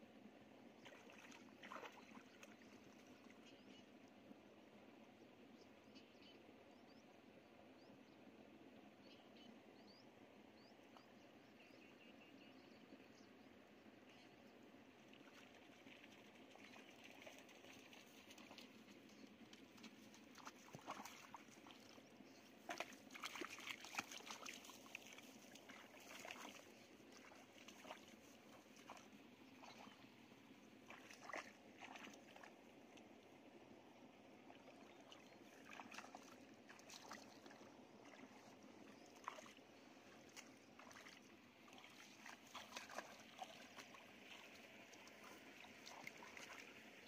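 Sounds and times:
muddy water splashing: 0:00.8 - 0:03.4, 0:15.0 - 0:33.6, 0:34.3 - 0:47.0.

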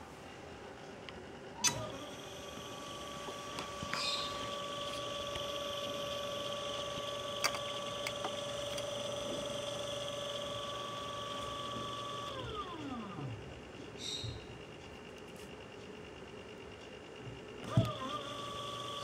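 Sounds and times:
electric motor whine: 0:01.6 - 0:13.5, 0:17.6 - 0:19.0.

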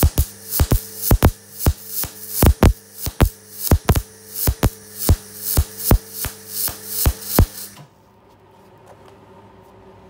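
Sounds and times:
crackling welding arc bursts: 0:00.0 - 0:07.8.

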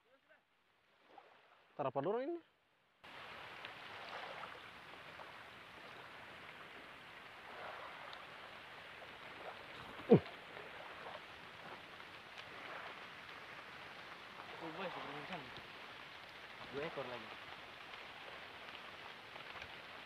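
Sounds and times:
water lapping at shore: 0:00.0 - 0:01.8, 0:03.0 - 0:20.0.

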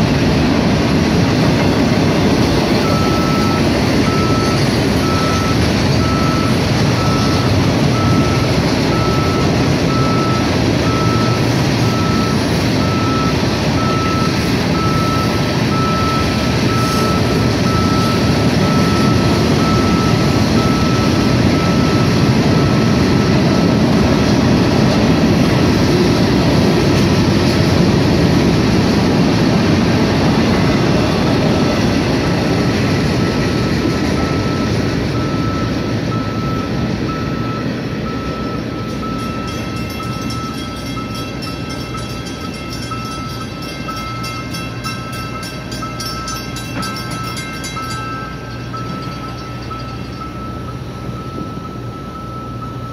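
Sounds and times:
freight train cars rumbling and rattling: 0:00.0 - 0:52.9
electronic beep: 0:02.8 - 0:23.8, 0:32.5 - 0:44.3, 0:47.8 - 0:52.9.

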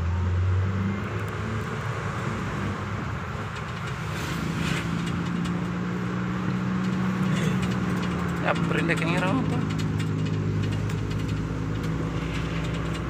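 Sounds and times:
car engine humming: 0:00.0 - 0:13.0
tyre and road noise: 0:00.0 - 0:13.0.

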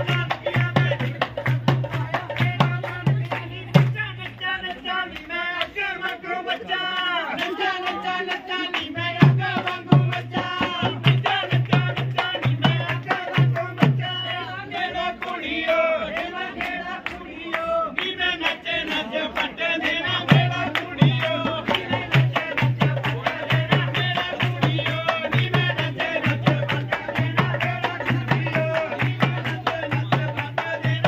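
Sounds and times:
steady drum beat: 0:00.0 - 0:04.3, 0:08.9 - 0:14.8, 0:19.7 - 0:31.0
person singing folk song: 0:00.0 - 0:31.0.

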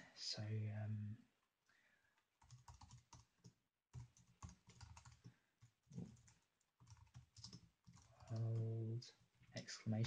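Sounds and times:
faint keyboard typing: 0:02.4 - 0:09.7.

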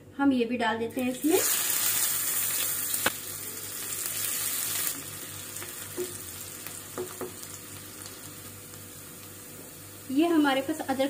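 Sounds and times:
onions sizzling: 0:01.0 - 0:11.0
spatula tapping against pan: 0:06.9 - 0:07.4.

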